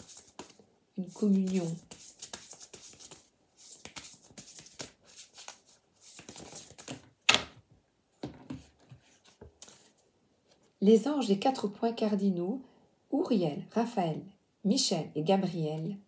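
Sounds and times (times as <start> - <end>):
cards shuffling: 0.0 - 7.6, 8.5 - 10.0.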